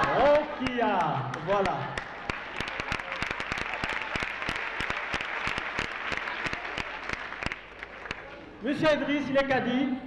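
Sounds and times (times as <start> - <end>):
audience applause: 0.0 - 8.5.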